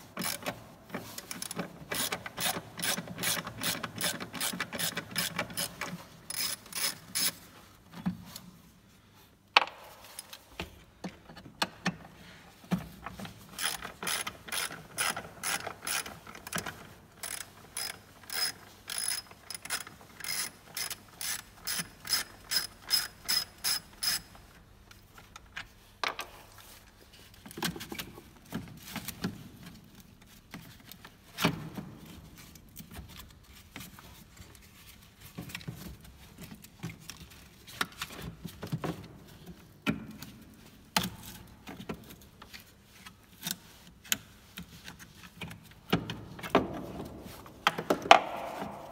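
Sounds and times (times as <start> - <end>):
socket ratchet clicking: 17.2 - 24.3.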